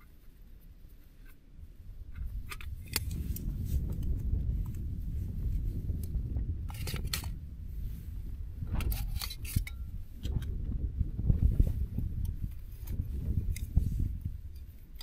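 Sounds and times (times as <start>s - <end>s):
steady low rumble: 0.5s - 15.0s.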